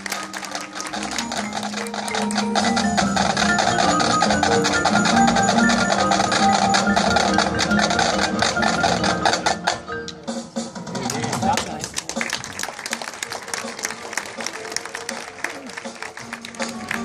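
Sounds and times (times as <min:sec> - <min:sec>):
mallet keyboard melody: 0:00.0 - 0:10.7
fast percussion strokes: 0:00.0 - 0:12.3
marching band low notes: 0:00.0 - 0:17.0.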